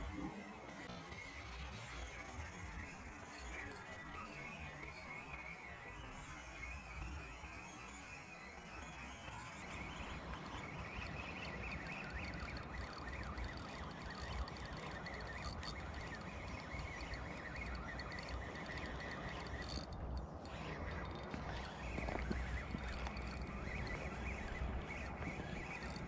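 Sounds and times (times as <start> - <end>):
fishing reel cranking: 3.2 - 5.0, 9.3 - 26.0.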